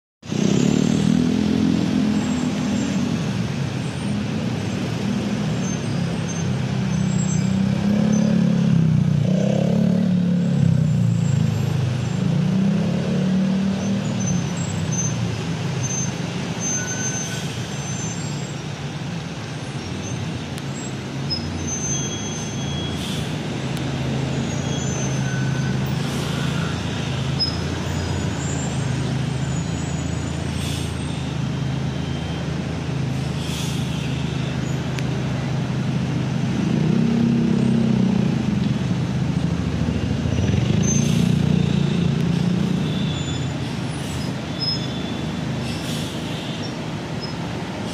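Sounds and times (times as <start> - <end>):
car engines idling and pulling away: 0.2 - 47.9
bus drawing up: 13.6 - 36.9, 37.6 - 47.9
short high squeaks: 15.8 - 18.5, 19.6 - 23.3, 24.3 - 31.3, 42.8 - 47.9.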